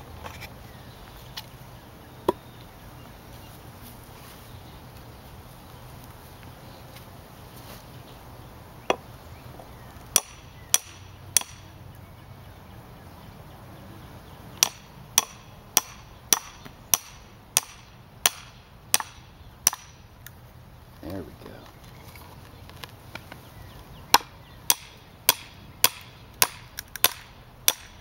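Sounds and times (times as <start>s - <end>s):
hammer striking hatchet: 10.1s - 11.7s, 14.6s - 20.0s, 24.2s - 28.0s.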